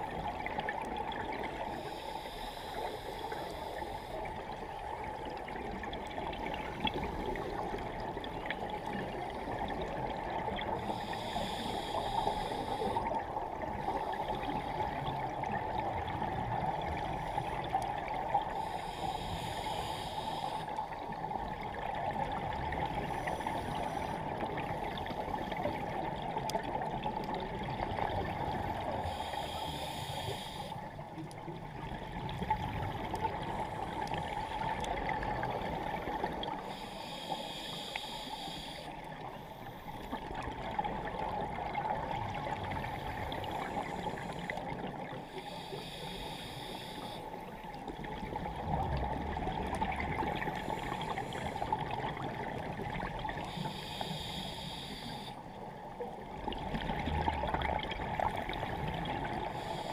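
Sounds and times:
underwater hiss: 1.1 - 4.6, 6.9 - 55.6, 56.5 - 59.9
regulator bubbles hissing: 56.2 - 59.9.

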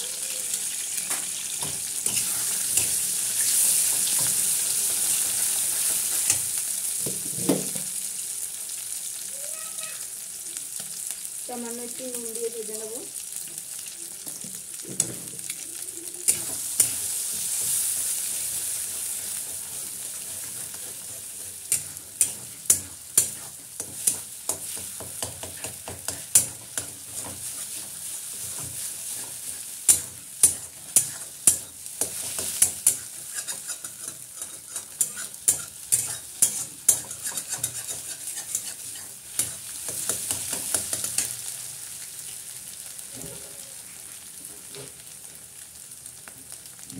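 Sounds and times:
eggs sizzling in hot oil: 0.0 - 46.9
metal spatula scraping and knocking: 20.2 - 41.3.

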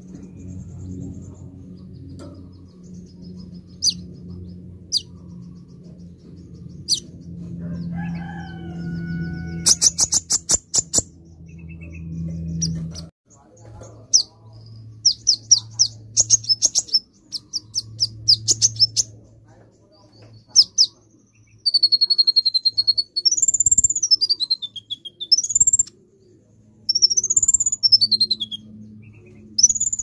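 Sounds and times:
bird chirping and trilling: 0.0 - 19.2, 20.0 - 26.3, 26.9 - 30.0.

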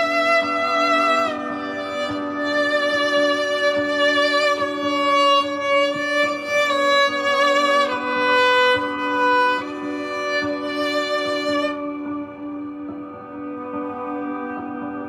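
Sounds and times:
bowed viola melody: 0.0 - 15.0.

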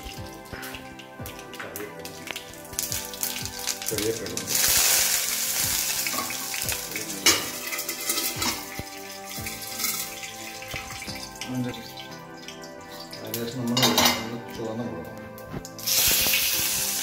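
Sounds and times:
hot oil sizzling: 0.0 - 14.6, 15.3 - 17.0
steel lid clanking onto pan: 13.8 - 14.4.

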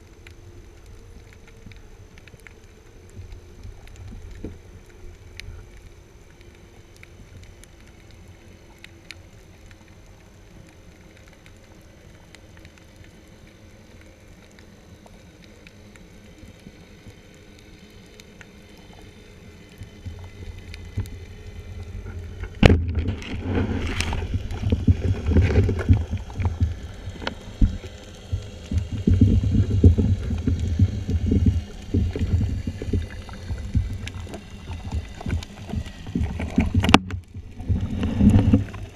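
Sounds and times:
faint clicks: 0.0 - 38.9
low underwater rumble: 18.8 - 38.9
churning water: 21.8 - 38.9.

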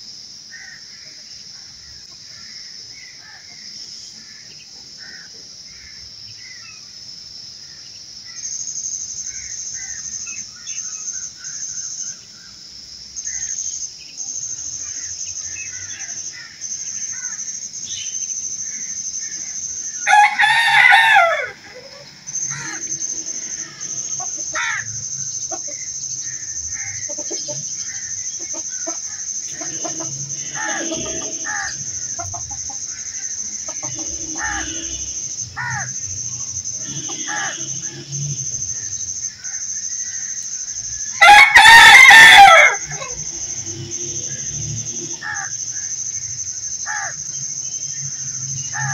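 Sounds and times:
high-pitched insect drone: 0.0 - 48.9
bird chirps: 13.2 - 20.2, 21.6 - 41.3
rooster crowing: 20.0 - 36.1, 36.8 - 38.2, 41.1 - 45.6, 48.6 - 48.9.

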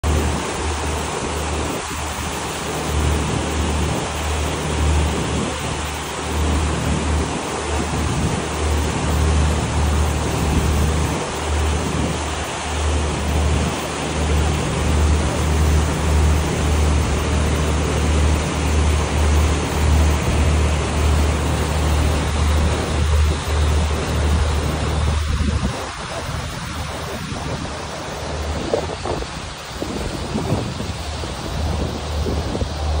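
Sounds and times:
water rushing in boat wake: 0.0 - 33.0
wind buffeting microphone: 3.1 - 33.0.

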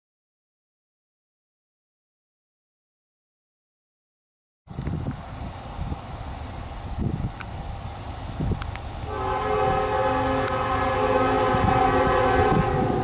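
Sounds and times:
freight train rumble: 4.7 - 13.0
locomotive air horn: 9.0 - 13.0.

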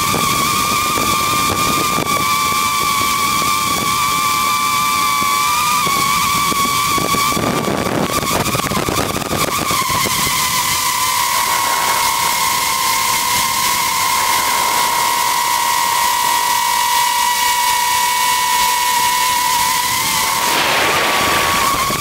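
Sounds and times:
drone motors whining: 5.4 - 22.0
rushing hiss: 10.1 - 22.0.

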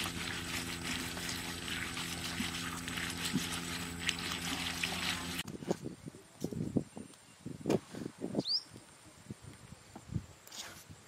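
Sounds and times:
low hum: 0.0 - 5.4
water trickling over stone: 0.0 - 5.4.

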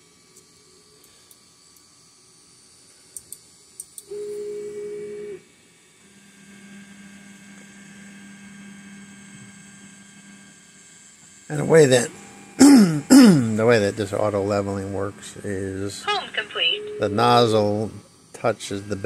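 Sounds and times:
stepper motor whine: 11.5 - 19.0.

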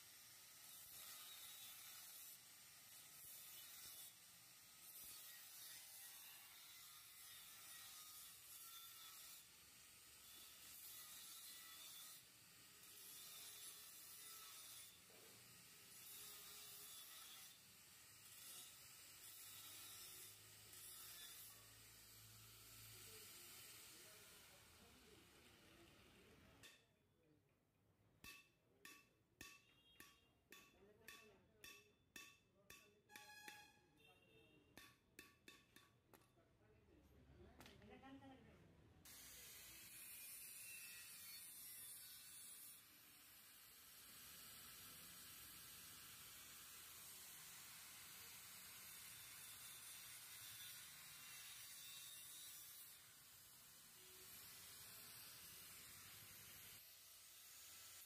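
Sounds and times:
angle grinder cutting metal pipe: 0.0 - 26.8, 39.1 - 58.0.

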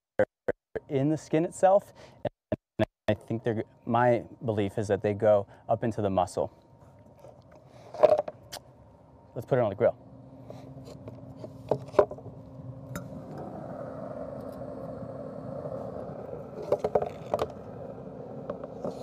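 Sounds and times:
steady hum: 0.4 - 19.0
rushing noise: 12.5 - 19.0.

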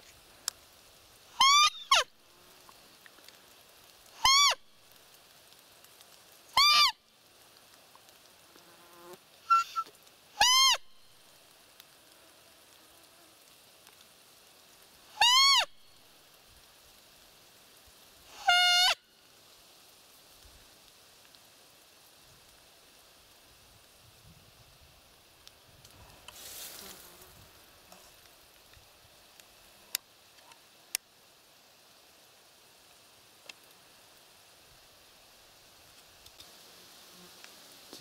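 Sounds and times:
deer call squeaks: 1.4 - 2.1, 4.2 - 4.6, 6.6 - 7.0, 9.5 - 10.8, 15.2 - 15.7, 18.3 - 19.0.

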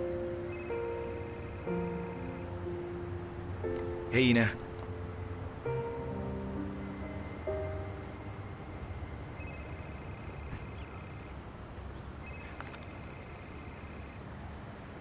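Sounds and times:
mobile phone ringing: 0.5 - 2.5, 9.4 - 11.4, 12.2 - 14.2.

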